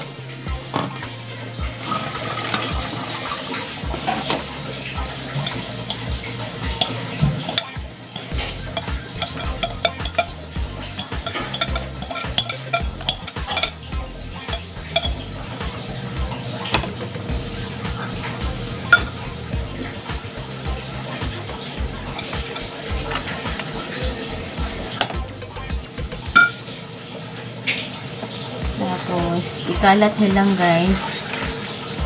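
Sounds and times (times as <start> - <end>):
spoon scraping a bowl: 5.3 - 15.3, 18.8 - 19.3, 22.0 - 23.4.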